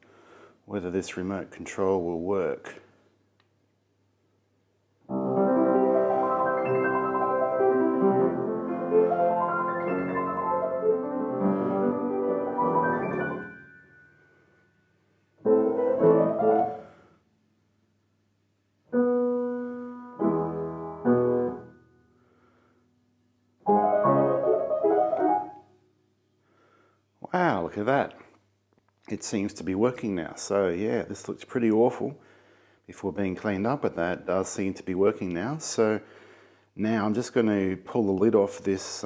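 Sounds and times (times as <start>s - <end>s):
player piano playing: 5.1s - 14.2s, 15.4s - 16.9s, 18.9s - 21.8s, 23.6s - 25.7s.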